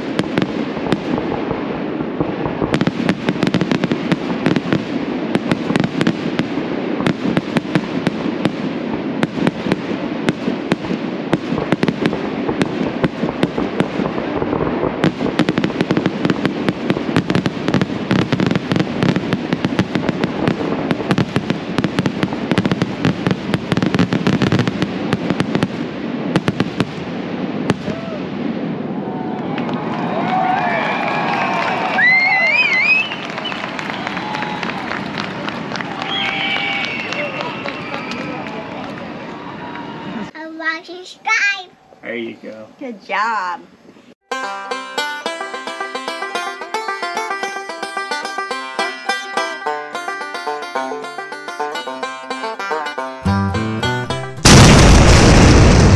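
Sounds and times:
fireworks bursting and crackling: 0.0 - 41.2, 45.0 - 55.9.

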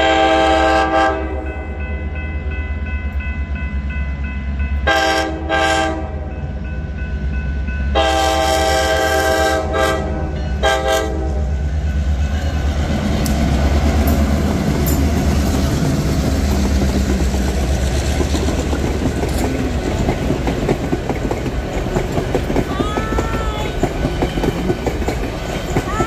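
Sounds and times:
locomotive horn blasts: 0.0 - 1.6, 4.8 - 6.4, 8.0 - 11.6
train wheels clattering over rail joints: 13.0 - 26.0.

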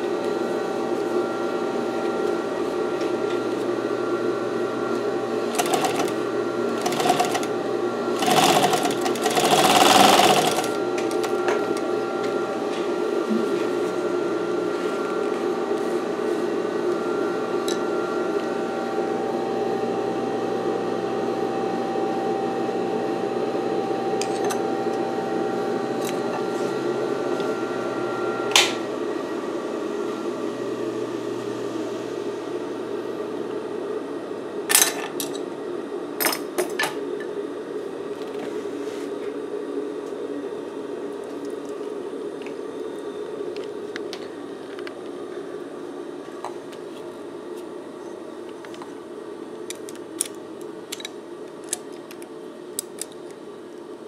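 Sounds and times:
sewing machine motor humming: 5.4 - 11.9.

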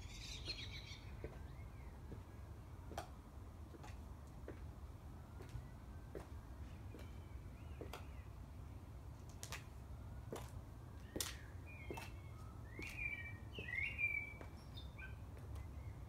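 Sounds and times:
small bird chirping: 0.0 - 1.7
high heels clicking on paving: 1.2 - 4.8, 5.4 - 8.2, 9.2 - 13.8, 14.4 - 14.6.

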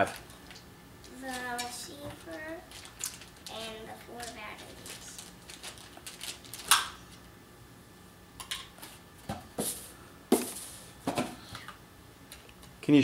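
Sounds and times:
plastic parts and packaging rustling: 0.0 - 7.3.

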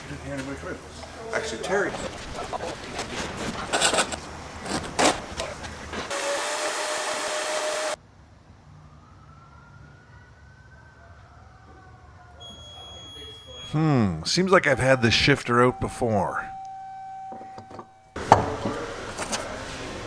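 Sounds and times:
shop vacuum running: 6.0 - 8.0
faint hum: 12.4 - 18.2.

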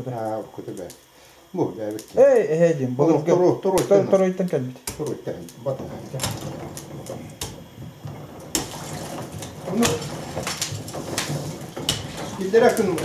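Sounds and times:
metal hook knocking frozen chunks: 6.0 - 13.0.

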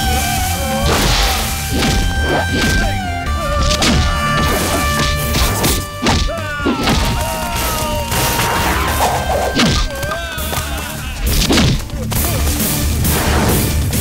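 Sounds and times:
dramatic background music: 0.0 - 14.0
punch and crash sound effects: 0.8 - 3.0, 3.6 - 7.6, 8.2 - 10.1, 11.3 - 11.9, 13.0 - 14.0.

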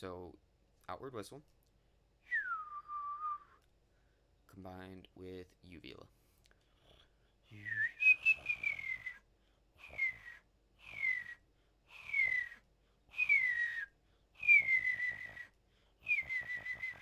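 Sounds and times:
fluttering mouth whistle: 2.3 - 3.6, 7.5 - 17.0.

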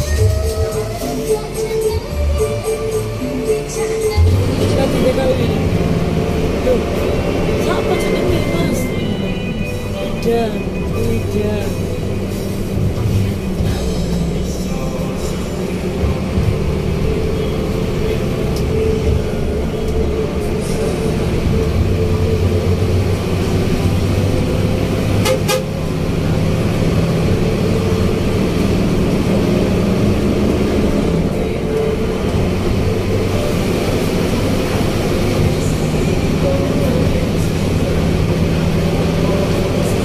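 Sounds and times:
bus diesel engine running: 0.0 - 40.0
horn toots: 25.1 - 25.9.

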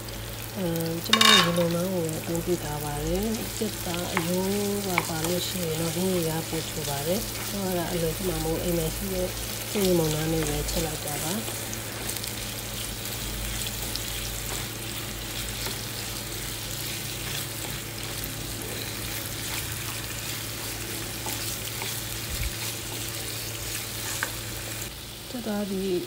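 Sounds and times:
chicken sizzling in oil: 0.0 - 26.0
spatula scraping pan: 1.1 - 1.8.

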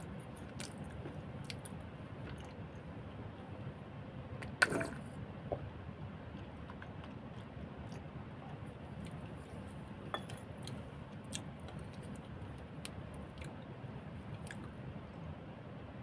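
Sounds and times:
chewing crisp food: 0.0 - 2.9, 6.3 - 9.9, 10.5 - 13.7, 14.3 - 14.8
low background noise: 0.0 - 16.0.

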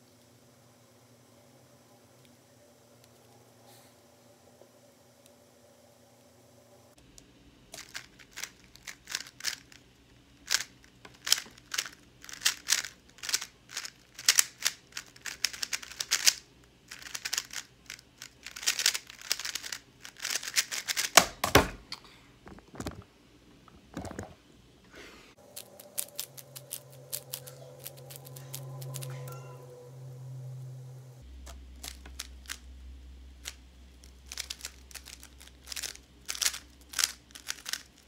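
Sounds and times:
puzzle cube layers clicking: 10.5 - 21.2, 25.5 - 29.1, 31.8 - 32.6, 33.4 - 38.0.

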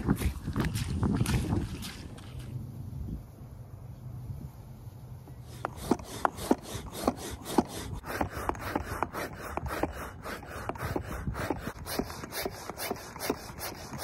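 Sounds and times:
hand pump strokes hissing: 5.4 - 14.0.

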